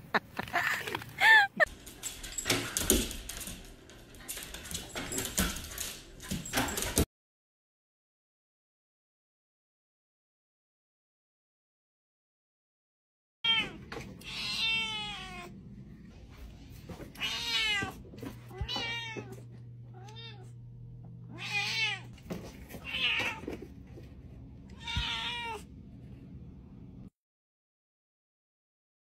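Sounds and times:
cat meowing: 13.4s - 15.5s, 21.3s - 22.1s, 24.7s - 25.7s
faint low hum: 13.8s - 27.1s.

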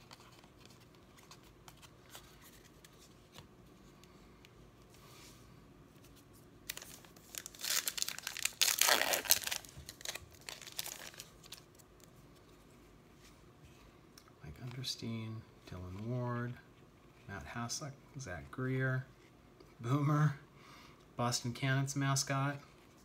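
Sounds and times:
foil wrapper tearing and crinkling: 6.7s - 11.8s.

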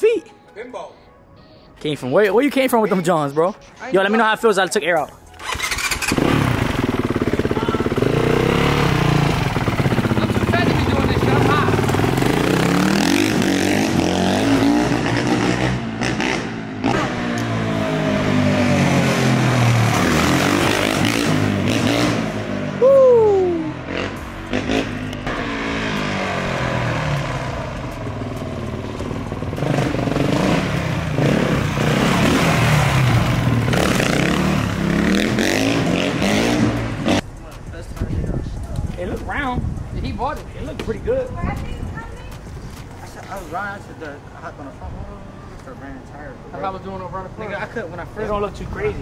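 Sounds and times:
dirt bike engine revving: 5.4s - 22.8s, 23.8s - 37.2s.

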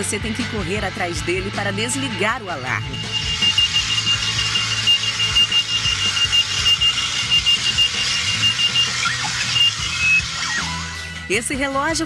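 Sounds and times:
alarm clock beeping: 2.7s - 10.8s.

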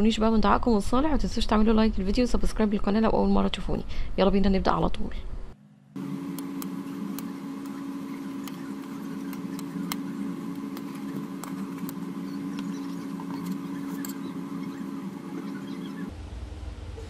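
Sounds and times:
motor humming: 5.9s - 16.2s.

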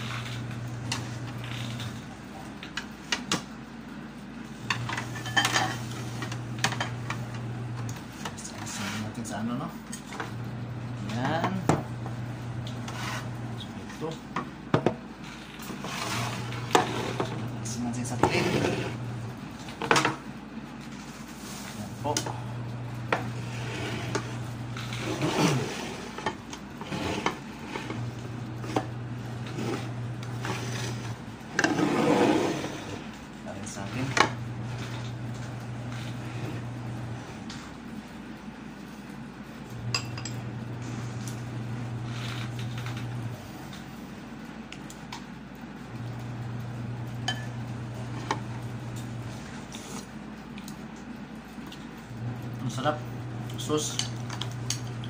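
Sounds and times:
crisp fried food rubbed by hand: 8.6s - 9.2s, 20.9s - 21.9s, 49.3s - 50.1s.

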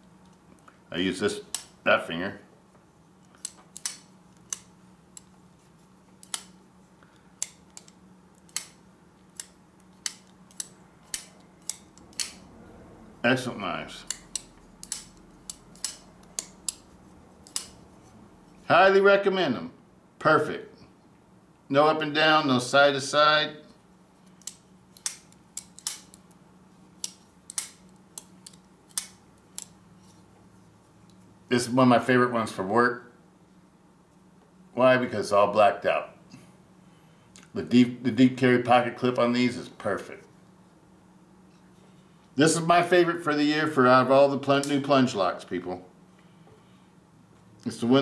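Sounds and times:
folding knife blade clicking: 9.4s - 12.4s, 14.0s - 16.8s, 17.4s - 17.8s.

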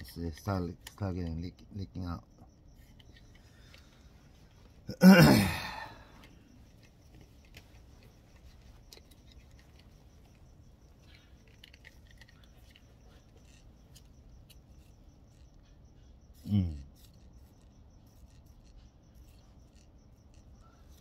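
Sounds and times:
small clicks of handling: 6.1s - 15.7s.

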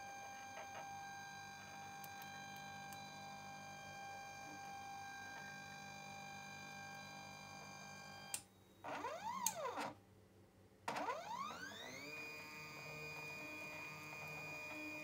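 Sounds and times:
stepper motor whine: 11.1s - 15.0s.

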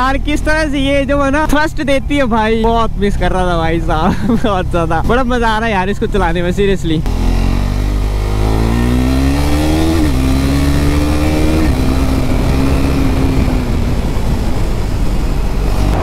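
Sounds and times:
motorcycle engine accelerating: 6.9s - 16.0s
wind on microphone: 8.3s - 16.0s.

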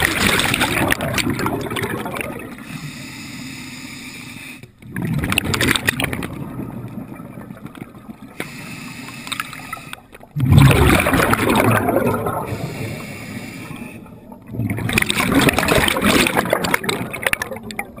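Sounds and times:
bubbles rushing underwater: 0.0s - 2.6s, 4.8s - 8.4s, 10.2s - 12.9s, 14.0s - 18.0s.

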